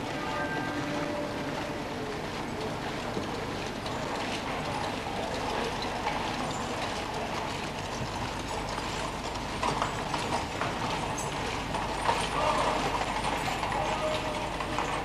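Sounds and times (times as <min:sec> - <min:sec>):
carriage wheels rolling on gravel: 0:03.7 - 0:15.0.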